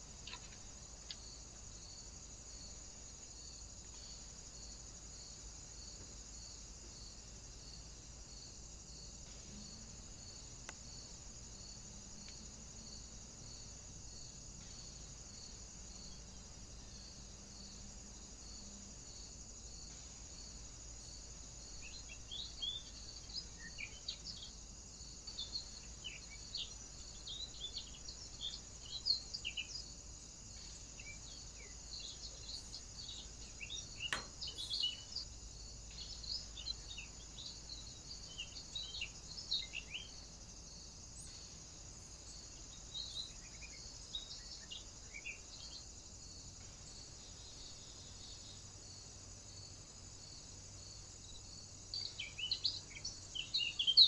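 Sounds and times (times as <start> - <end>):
bird chirps and calls: 52.0 - 54.0.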